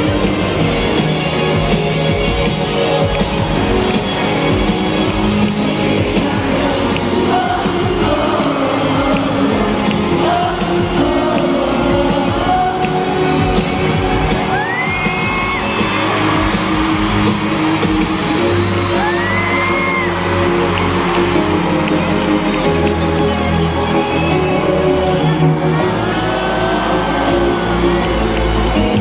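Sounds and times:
fans screaming: 0.0s - 29.0s
pop music and singing: 0.0s - 29.0s.

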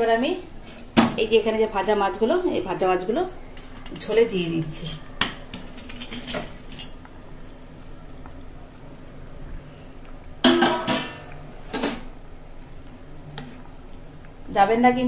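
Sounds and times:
faint steady hum: 0.0s - 15.0s
metal utensil clanking on pan: 10.4s - 12.1s.

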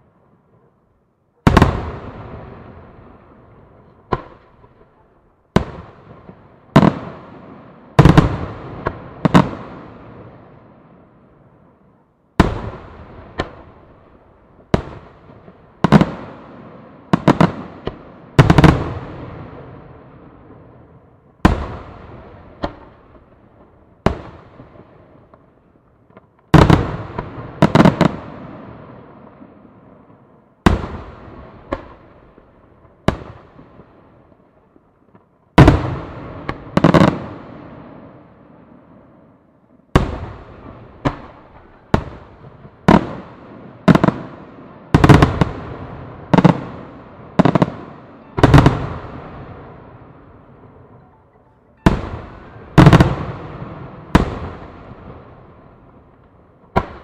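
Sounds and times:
firework shells booming: 51.8s - 57.0s.

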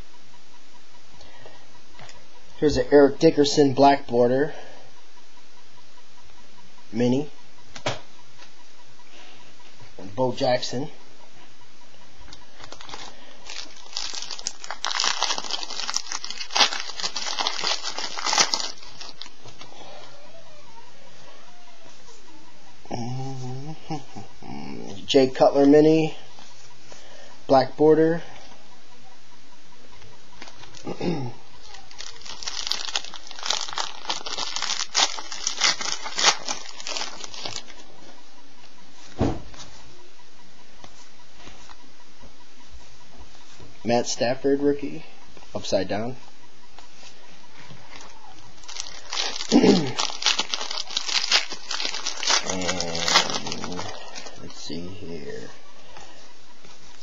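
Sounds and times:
card pack wrapper crinkling: 12.6s - 19.7s, 31.6s - 37.8s, 48.6s - 54.5s
low thump: 39.2s - 39.5s.

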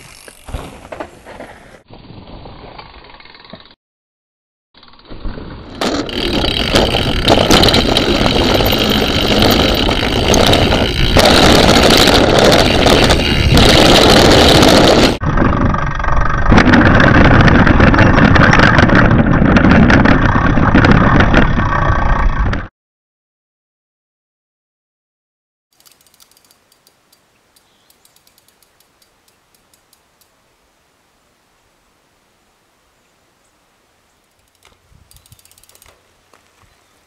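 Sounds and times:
mountain bike rattling: 0.0s - 3.8s, 4.8s - 22.6s, 25.8s - 26.9s, 34.2s - 36.6s
tyres crunching on dirt trail: 5.7s - 15.2s, 34.8s - 37.0s
wind rushing on microphone: 6.3s - 22.7s.

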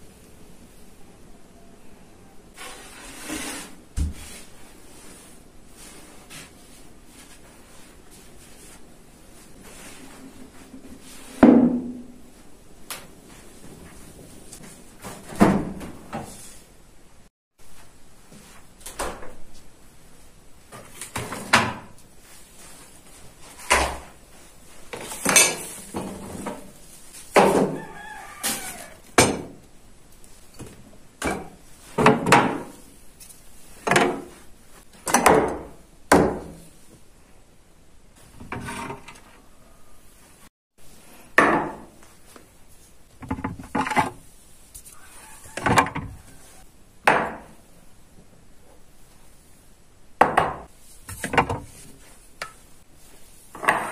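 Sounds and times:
rooster crowing: 27.5s - 29.2s, 39.3s - 40.1s, 44.9s - 46.7s.

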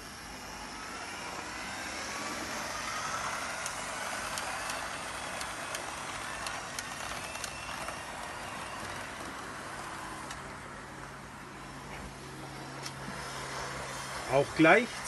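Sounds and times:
model train motor whine: 0.0s - 15.0s
wheels clicking over track: 1.5s - 10.6s.

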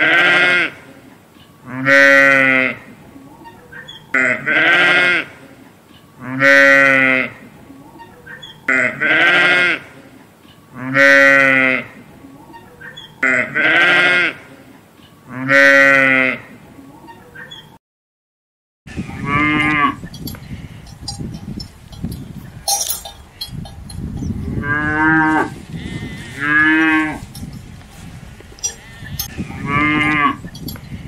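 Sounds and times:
sheep bleating: 4.2s - 5.3s, 13.2s - 14.4s, 24.7s - 27.2s.

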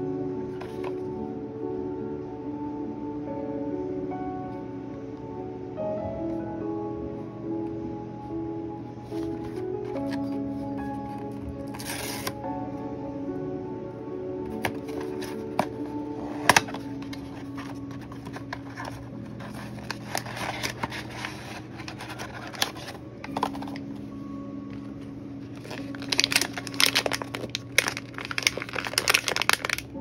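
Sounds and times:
cardboard box opening: 9.1s - 12.4s, 14.5s - 23.8s, 25.6s - 29.8s
foil bag crinkling: 11.6s - 12.4s, 14.5s - 23.8s, 25.5s - 30.0s.

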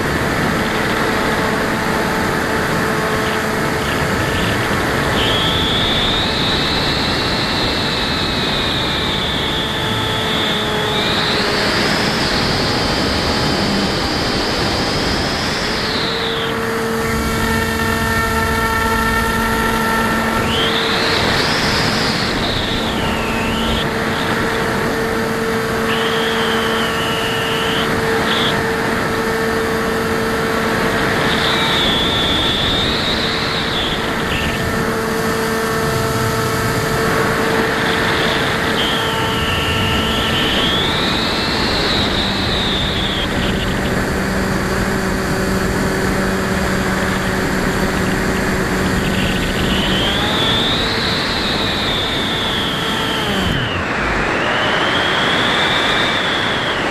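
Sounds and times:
model plane motor whining: 0.0s - 56.9s
wind rush: 0.0s - 56.9s.

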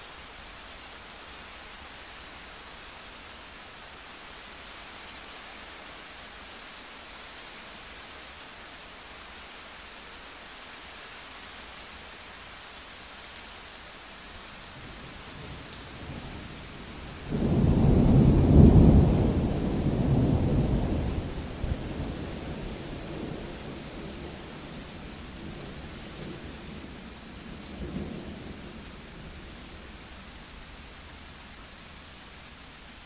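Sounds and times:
steady rain hiss: 0.0s - 33.0s
thunder rumbling: 17.3s - 23.8s.

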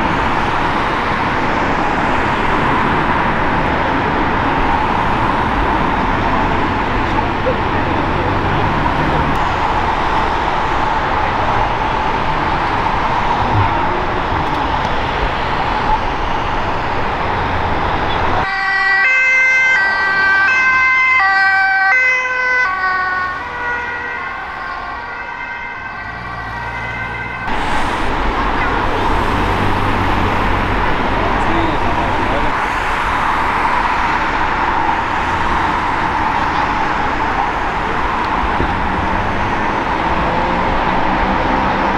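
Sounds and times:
road traffic noise: 0.0s - 41.9s
two-tone ambulance siren: 18.1s - 41.9s.

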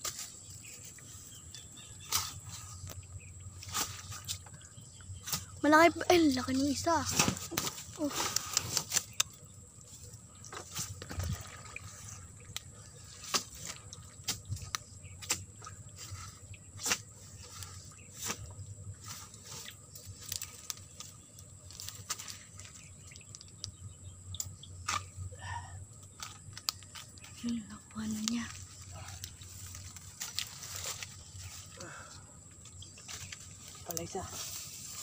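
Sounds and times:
dry leaves crunching: 28.0s - 31.8s.

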